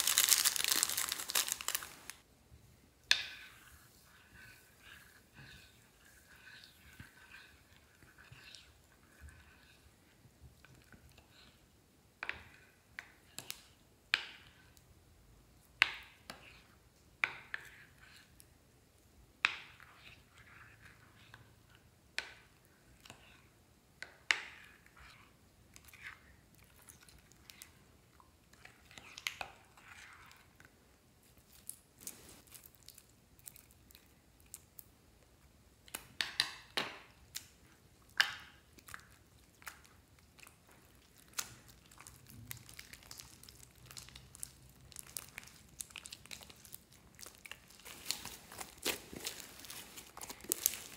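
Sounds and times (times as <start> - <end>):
spoon stirring wet slime: 3.0 - 50.9
sticky slime squelches: 24.2 - 50.9.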